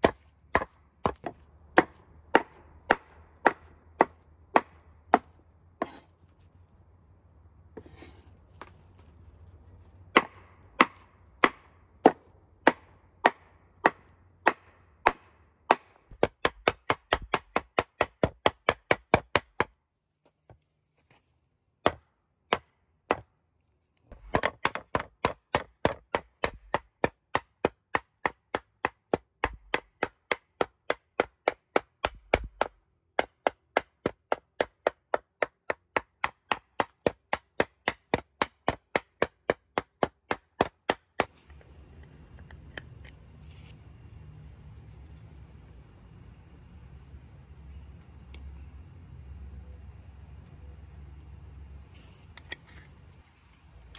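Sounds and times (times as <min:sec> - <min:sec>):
cleaver chopping on wooden board: 0:10.1 - 0:19.8, 0:24.2 - 0:41.3.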